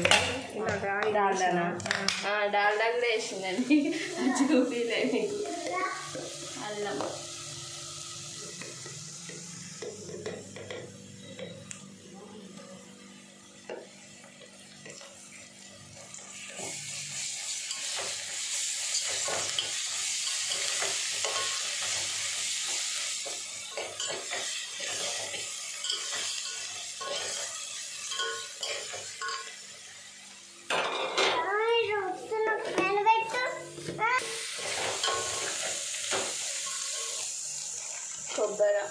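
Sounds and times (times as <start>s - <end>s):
fat sizzling in a pot: 0.0s - 38.9s
metal spoon clinking and scraping: 18.9s - 22.0s, 23.6s - 29.6s, 34.6s - 35.7s.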